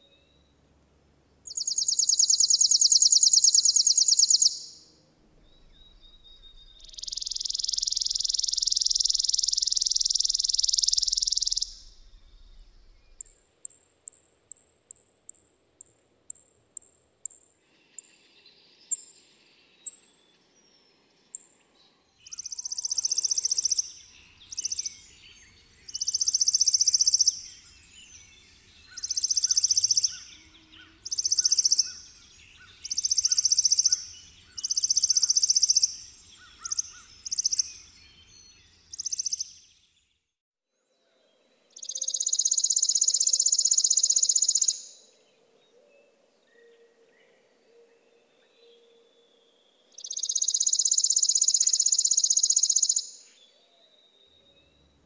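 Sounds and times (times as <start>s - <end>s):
sparrow chips and trills: 1.5s - 4.9s, 5.6s - 20.4s, 21.3s - 39.8s, 41.8s - 45.1s, 50.0s - 53.5s.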